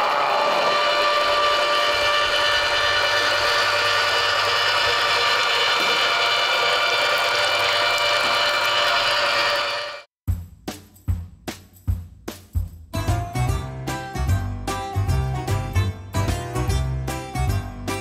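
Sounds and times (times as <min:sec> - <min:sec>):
tomato milling machine humming: 0:00.0 - 0:10.1.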